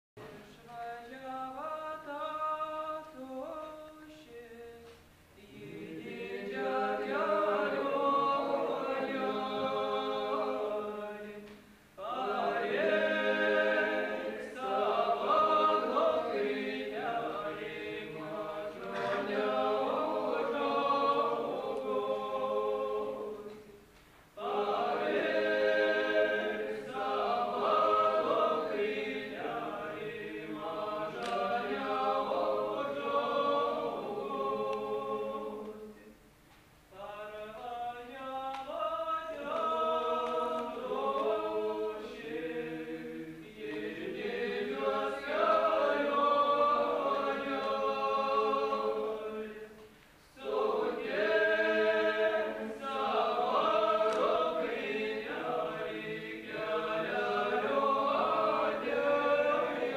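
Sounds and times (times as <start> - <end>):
person singing unaccompanied: 0.2 - 23.7.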